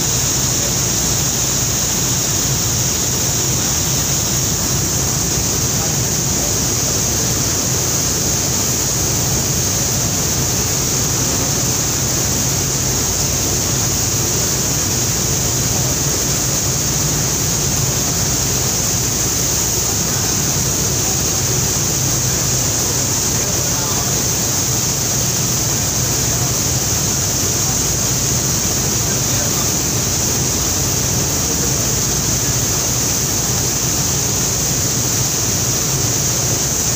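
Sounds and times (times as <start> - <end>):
rush of foaming water: 0.0 - 36.9.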